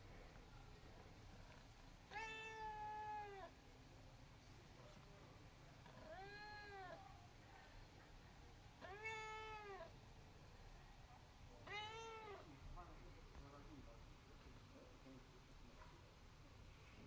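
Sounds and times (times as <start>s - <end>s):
cat meowing: 2.1s - 3.5s, 5.9s - 7.0s, 8.8s - 9.9s, 11.6s - 12.5s.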